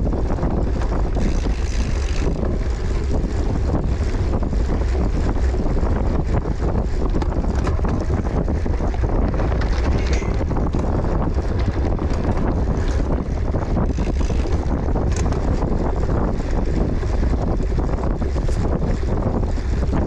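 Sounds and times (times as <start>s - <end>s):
wind buffeting microphone: 0.0s - 20.0s
bike knocks and rattles: 0.4s - 3.1s, 6.0s - 16.3s.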